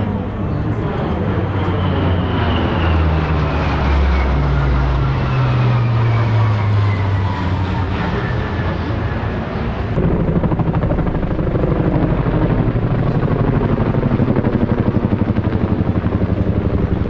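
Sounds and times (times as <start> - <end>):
helicopter rotor blades beating: 0.0 - 17.0
turboprop plane droning: 0.0 - 17.0.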